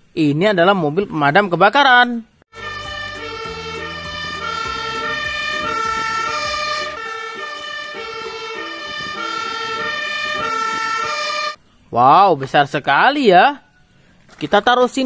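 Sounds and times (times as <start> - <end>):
two-tone siren: 2.5 - 11.6
low engine rumble: 2.6 - 11.4.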